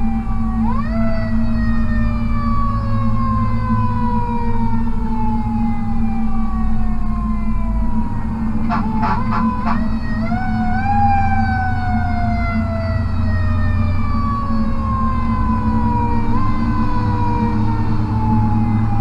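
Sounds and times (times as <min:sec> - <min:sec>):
diesel engine drone: 0:00.0 - 0:19.0
fire truck siren: 0:00.0 - 0:19.0
short horn blasts: 0:08.7 - 0:09.9.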